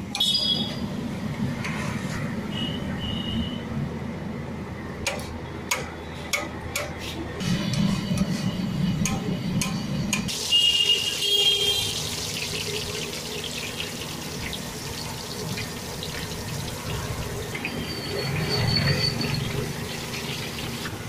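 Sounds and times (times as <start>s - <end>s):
potato slices deep-frying in oil: 10.3s - 21.0s.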